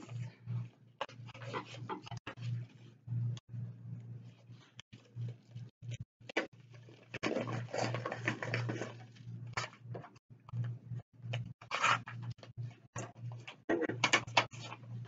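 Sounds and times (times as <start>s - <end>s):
low electrical hum: 0.0s - 15.0s
paper rustling and crackling: 6.3s - 9.8s.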